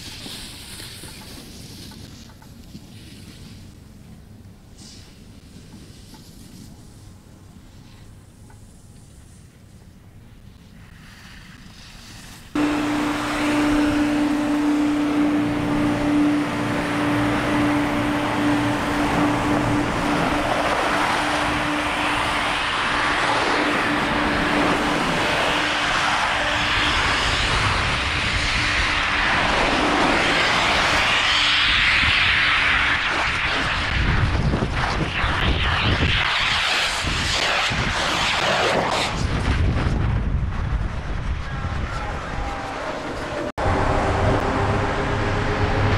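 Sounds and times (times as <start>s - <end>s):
skis scraping over snow: 0.0s - 3.8s, 4.8s - 8.1s, 8.8s - 39.3s
snow guns hissing: 10.6s - 39.3s
humming tone: 12.6s - 33.1s, 41.6s - 45.9s.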